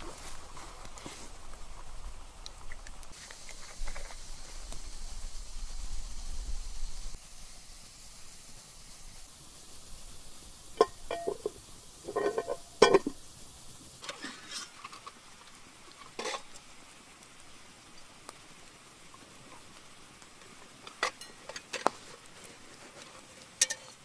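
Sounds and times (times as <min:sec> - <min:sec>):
metal cookware knocking and clinking: 0:10.8 - 0:13.2, 0:23.6 - 0:24.0.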